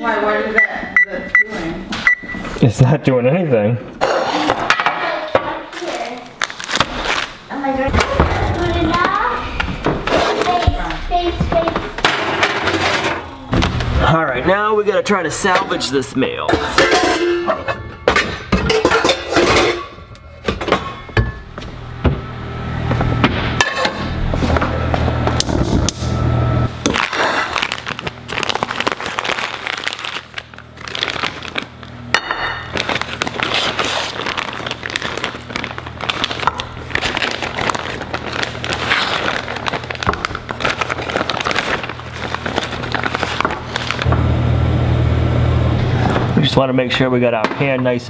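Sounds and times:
steady low hum: 0.0 - 47.2
plastic packaging crinkling: 5.7 - 7.7, 26.8 - 32.0, 32.6 - 44.1.

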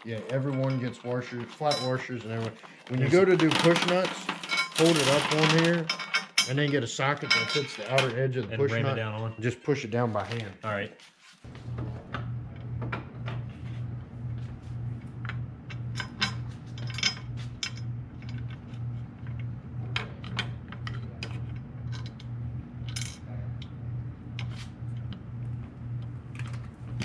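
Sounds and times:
metal hardware clinking: 3.5 - 8.2.

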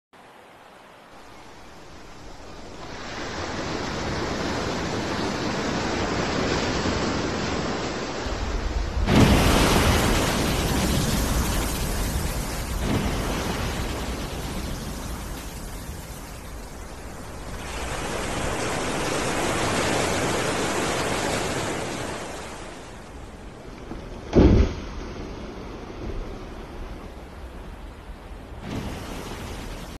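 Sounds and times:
sea rushing: 0.2 - 30.0
heavy low thump: 23.9 - 25.3.

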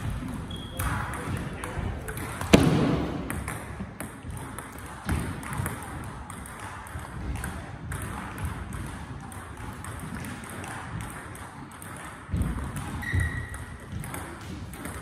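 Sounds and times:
high shoe squeak: 0.4 - 0.9, 12.9 - 13.8
heavy footwork thumps: 2.4 - 6.0.

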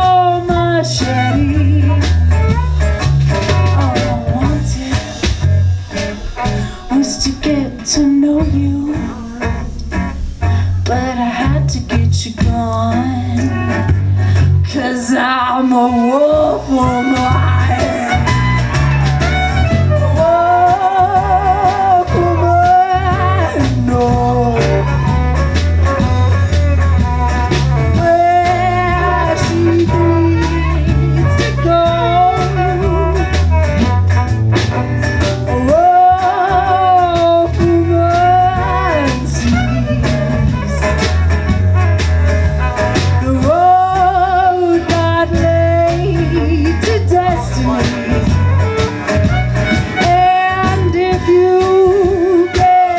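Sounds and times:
woman singing with vibrato: 0.0 - 2.2, 3.6 - 5.6, 6.2 - 13.9, 14.6 - 18.4, 19.9 - 25.3, 27.8 - 33.4, 35.5 - 40.9, 43.0 - 48.4, 49.9 - 52.9
folk band playing: 0.0 - 52.9.

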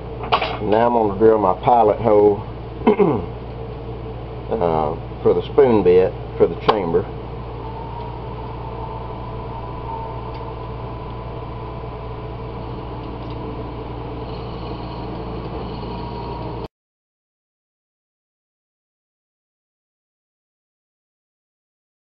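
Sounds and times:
drill bit high whine: 6.4 - 16.7
wood lathe humming: 7.1 - 16.7.

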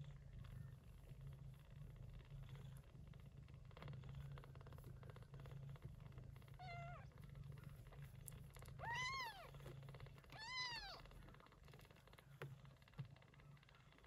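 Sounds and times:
cat meowing: 8.8 - 9.5, 10.4 - 11.0.

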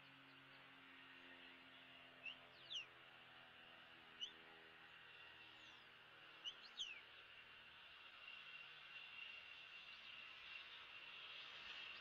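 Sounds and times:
faint bird chirps: 2.2 - 3.0, 5.6 - 7.1.

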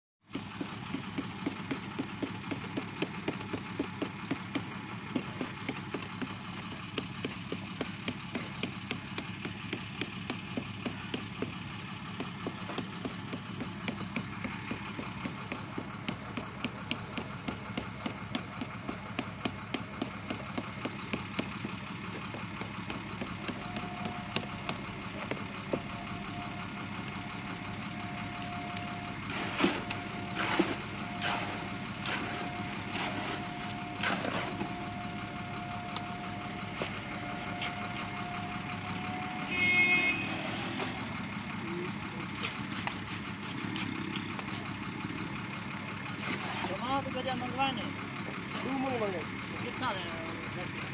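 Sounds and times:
engine-like drone: 0.2 - 50.9.

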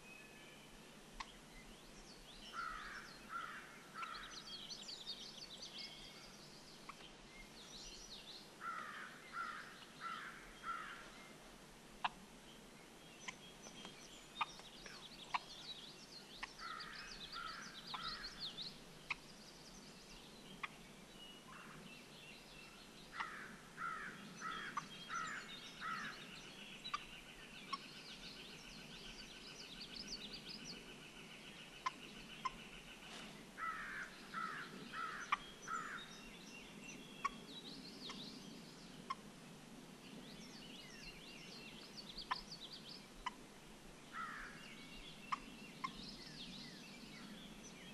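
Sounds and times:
songbirds chipping: 0.0 - 47.9
wild turkey calling: 2.5 - 4.5, 14.4 - 15.7, 16.4 - 18.4, 19.0 - 19.3, 23.1 - 26.2, 31.8 - 36.1, 42.2 - 42.6.

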